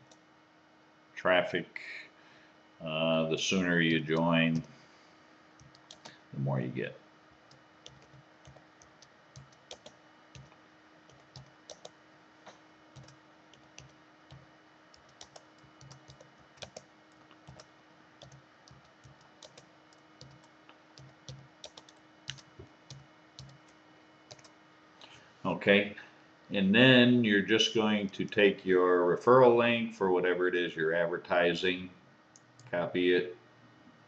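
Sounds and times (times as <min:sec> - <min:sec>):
typing on computer keyboard: 0:05.6 - 0:06.2, 0:07.5 - 0:10.5, 0:11.1 - 0:12.0, 0:13.0 - 0:24.5.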